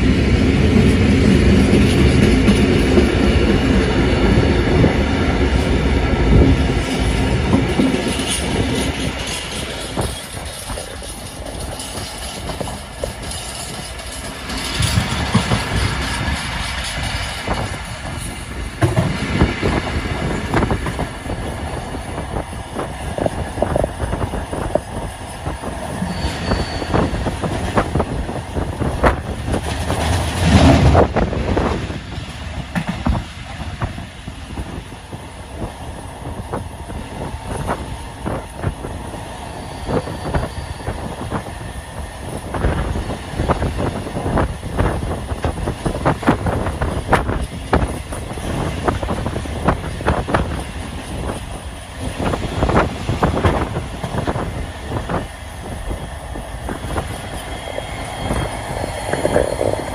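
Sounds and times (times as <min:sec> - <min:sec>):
freight wagons rumbling: 0:00.0 - 0:34.7, 0:36.4 - 0:59.9
wheels clicking over rail joints: 0:06.3 - 0:26.2
high wheel squeal: 0:21.3 - 0:28.1, 0:37.5 - 0:43.0.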